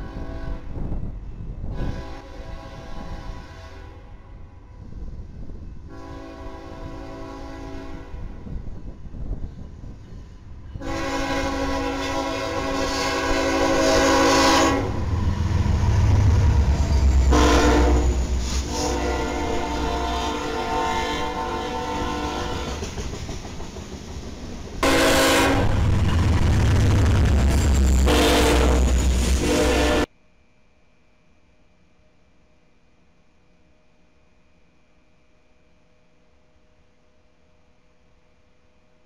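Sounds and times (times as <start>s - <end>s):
locomotive air horn: 0.0s - 0.8s, 1.7s - 4.3s, 5.9s - 8.5s, 10.8s - 15.4s, 17.0s - 22.9s, 24.8s - 26.2s, 28.0s - 30.1s
rumble of passing train: 0.0s - 30.2s.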